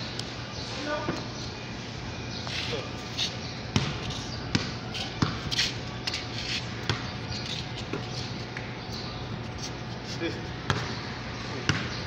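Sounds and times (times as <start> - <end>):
basketball bouncing on concrete: 3.7 - 5.6, 6.8 - 7.2, 10.6 - 12.0.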